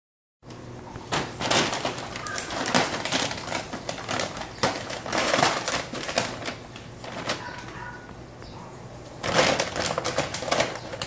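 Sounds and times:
paper bag rustling and crinkling: 0:01.0 - 0:08.3, 0:09.0 - 0:11.0.

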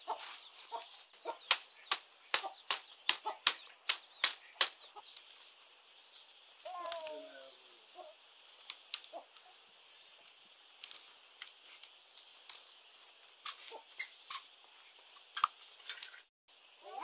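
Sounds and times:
bamboo strips clicking and rustling: 0:00.1 - 0:05.4, 0:06.6 - 0:07.3, 0:08.5 - 0:09.5, 0:10.2 - 0:14.5, 0:15.1 - 0:16.3.

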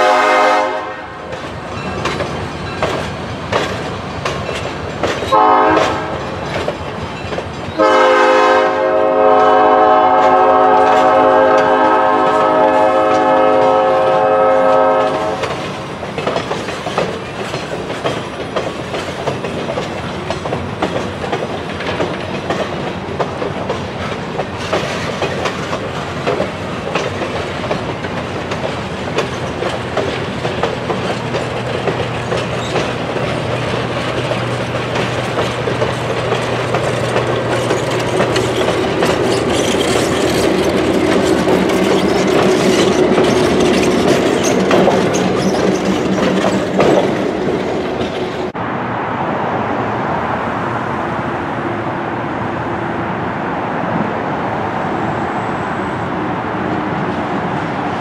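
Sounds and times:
train air horn: 0:00.0 - 0:01.3, 0:05.3 - 0:06.3, 0:07.8 - 0:15.5
train wheels clicking over rail joints: 0:00.0 - 0:48.6
diesel locomotive hum: 0:00.0 - 0:58.0.

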